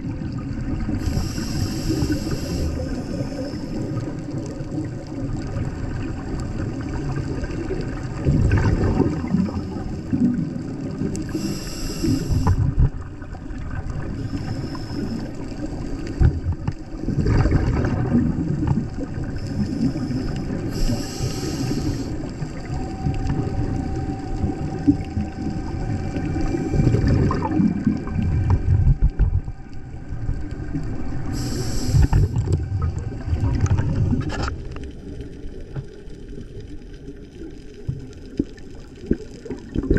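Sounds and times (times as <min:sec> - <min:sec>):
underwater water rumble and gurgle: 0:00.0 - 0:39.9
short hissing bursts: 0:01.0 - 0:03.9, 0:11.3 - 0:12.6, 0:19.4 - 0:22.2, 0:31.3 - 0:32.4.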